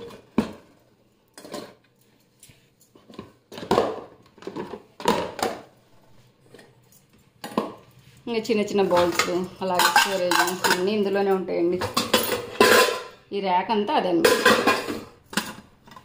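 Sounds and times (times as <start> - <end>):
bowls knocking and clattering: 2.9 - 5.7, 6.4 - 7.9, 8.7 - 13.2, 14.2 - 16.0.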